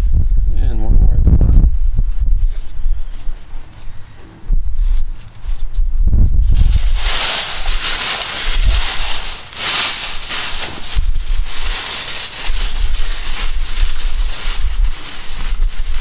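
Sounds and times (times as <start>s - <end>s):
wind rumble on microphone: 0.0s - 16.0s
dry leaves rustling: 6.4s - 16.0s.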